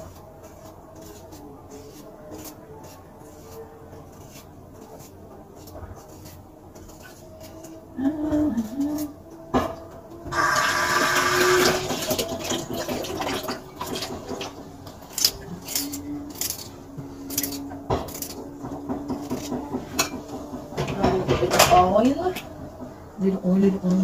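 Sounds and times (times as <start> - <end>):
kitchen tap running: 10.3 - 15.3.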